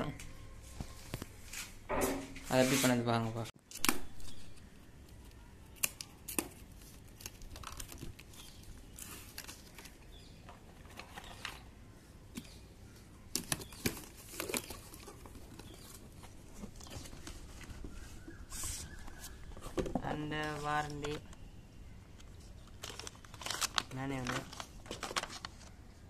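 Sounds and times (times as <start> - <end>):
cardboard rustling: 13.4 - 21.2.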